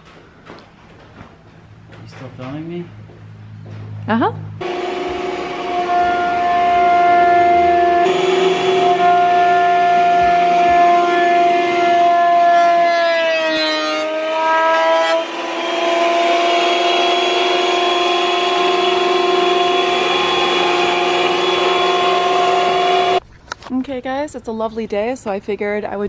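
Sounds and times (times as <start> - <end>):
thickness planer motor whine: 4.6 - 23.2.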